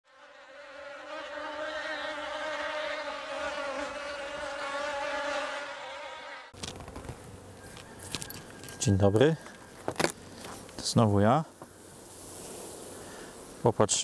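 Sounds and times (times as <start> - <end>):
bee buzzing: 0.1 - 8.8.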